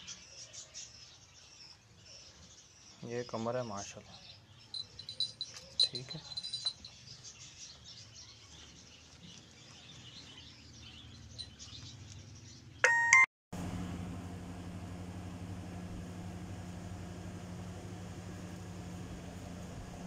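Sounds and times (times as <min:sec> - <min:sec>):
faint bird chirping: 0:00.0 - 0:13.2
low machine hum: 0:13.6 - 0:20.0.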